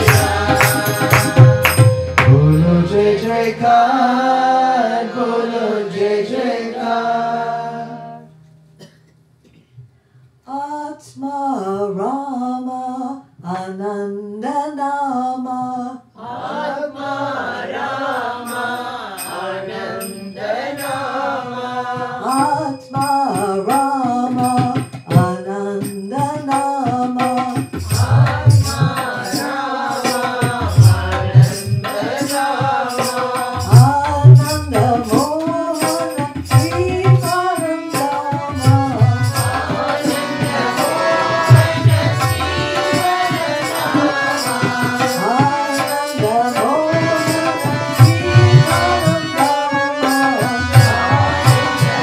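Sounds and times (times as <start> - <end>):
tabla drumming: 0.0 - 4.5, 21.6 - 52.0
person singing devotional song: 0.0 - 8.4, 10.5 - 52.0
harmonium: 0.0 - 8.7, 16.4 - 52.0.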